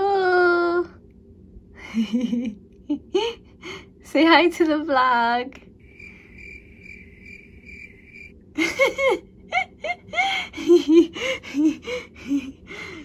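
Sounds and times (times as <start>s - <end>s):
person laughing over video call: 1.8s - 3.4s, 8.6s - 12.6s
faint high pulsing tone: 5.8s - 8.4s.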